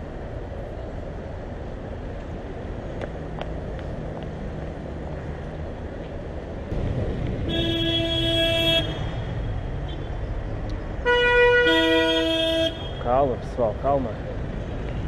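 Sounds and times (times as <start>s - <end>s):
traffic noise: 0.0s - 15.0s
car horns honking: 7.4s - 9.2s, 11.0s - 13.2s.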